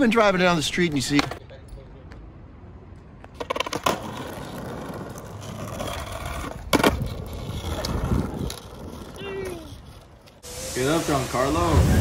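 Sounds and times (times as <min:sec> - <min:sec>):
skateboard wheels rolling: 0:02.9 - 0:12.0
skateboard clacking on pavement: 0:03.2 - 0:10.3.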